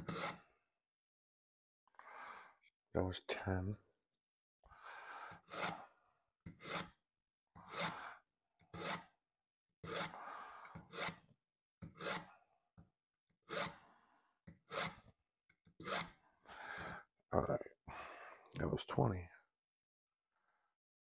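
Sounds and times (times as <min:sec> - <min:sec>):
knife scraping through sharpener: 0:00.0 - 0:00.5, 0:05.4 - 0:05.8, 0:06.5 - 0:07.0, 0:07.6 - 0:08.0, 0:08.7 - 0:09.2, 0:09.8 - 0:12.4, 0:13.5 - 0:13.8, 0:14.7 - 0:15.1, 0:15.8 - 0:16.2.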